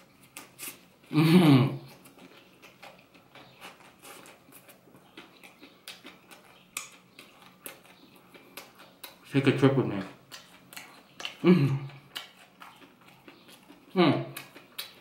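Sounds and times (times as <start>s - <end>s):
person chewing bread: 0.0s - 15.0s
wet mouth clicks: 10.1s - 15.0s.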